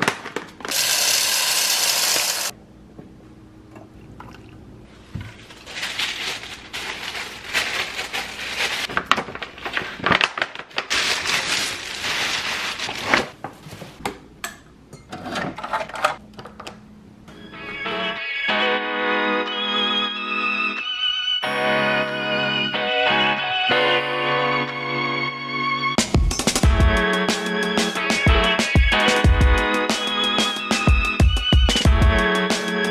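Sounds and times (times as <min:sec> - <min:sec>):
coffee beans pouring: 0:00.7 - 0:02.5
tissue paper rustling: 0:05.0 - 0:14.0.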